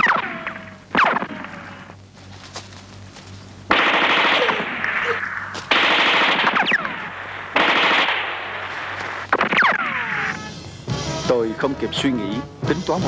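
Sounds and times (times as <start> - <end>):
automatic rifle fire: 0.0 - 1.6, 3.7 - 10.0
falling whines: 0.0 - 2.0, 8.2 - 10.7.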